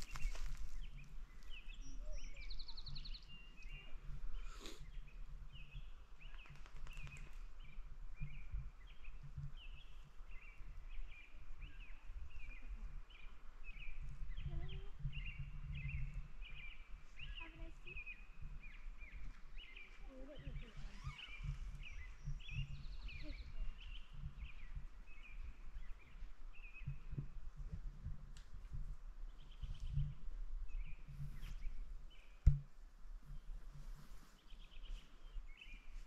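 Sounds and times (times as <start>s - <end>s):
bird chirping: 0.0s - 27.2s
low wind rumble: 0.0s - 36.0s.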